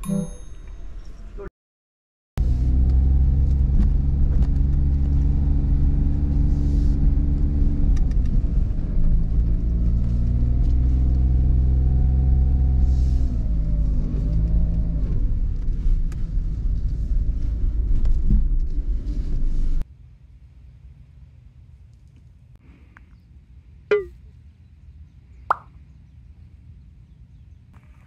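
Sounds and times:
car engine and road rumble: 0:02.4 - 0:22.5.

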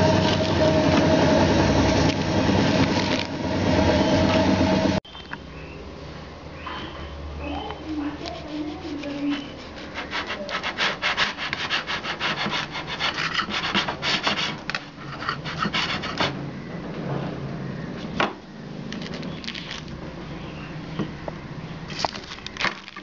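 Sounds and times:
knife sawing through cake: 0:08.2 - 0:16.4.

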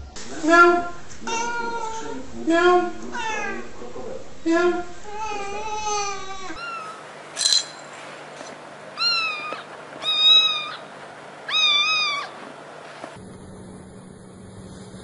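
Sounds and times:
kitten meowing: 0:00.4 - 0:03.6, 0:04.5 - 0:07.0, 0:09.0 - 0:10.8, 0:11.5 - 0:12.4.

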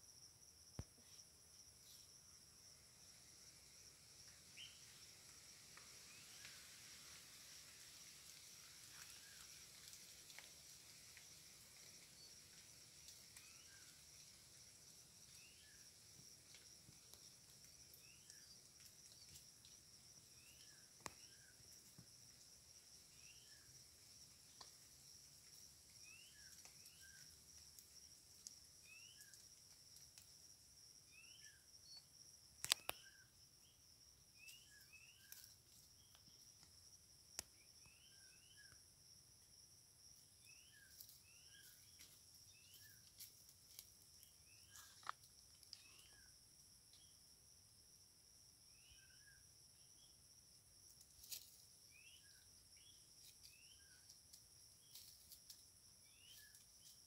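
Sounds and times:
insects droning: 0:00.0 - 0:57.0
sharp snaps: 0:32.6 - 0:33.2.

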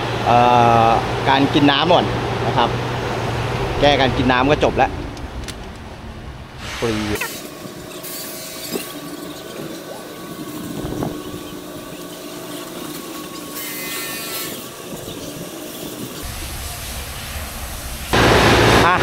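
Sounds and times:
outboard motors running: 0:00.0 - 0:16.5, 0:18.1 - 0:19.0.

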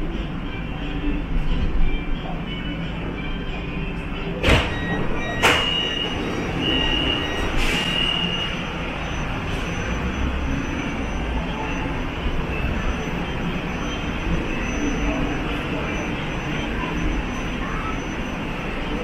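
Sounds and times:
metro train rumble: 0:00.0 - 0:19.0
brief high squeal: 0:04.7 - 0:08.7.

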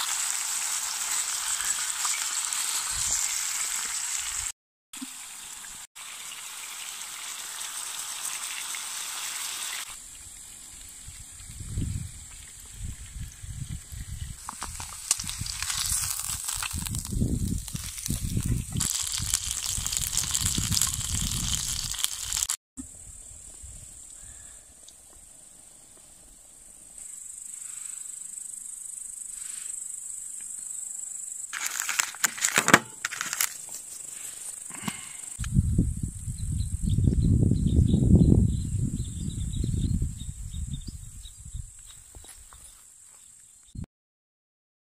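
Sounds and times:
steak sizzling in a skillet: 0:00.0 - 0:04.5, 0:06.0 - 0:10.0, 0:14.4 - 0:22.6
wind buffeting microphone: 0:10.9 - 0:16.0, 0:16.7 - 0:21.9, 0:35.4 - 0:42.2.

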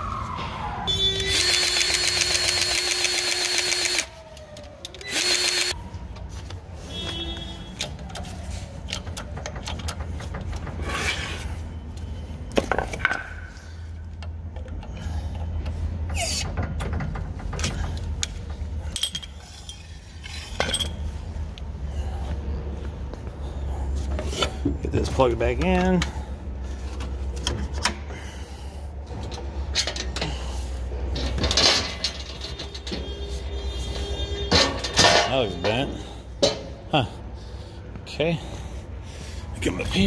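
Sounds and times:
grease gun motor whining: 0:01.2 - 0:04.1, 0:04.9 - 0:05.8.

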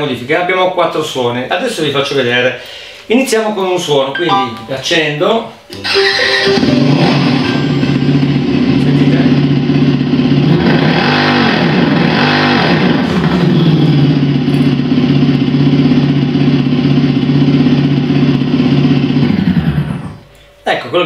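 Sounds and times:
simulated motorcycle engine revving: 0:05.8 - 0:20.3.

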